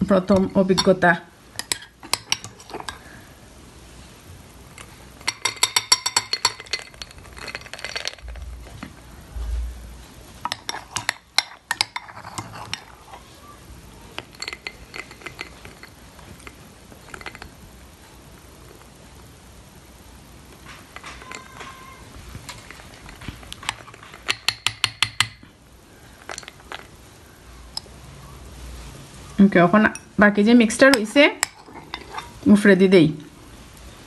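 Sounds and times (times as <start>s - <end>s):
metal spoon clinking on glass: 0.3s - 1.0s, 1.6s - 3.0s, 5.2s - 8.2s, 10.5s - 13.0s, 14.2s - 17.5s, 21.0s - 21.9s, 30.9s - 32.4s.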